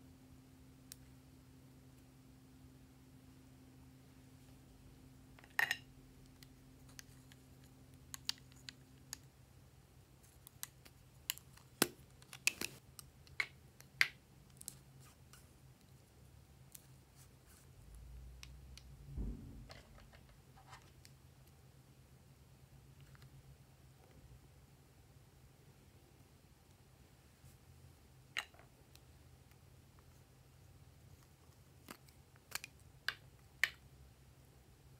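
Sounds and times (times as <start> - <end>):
soft low thump: 19.1 - 20.1.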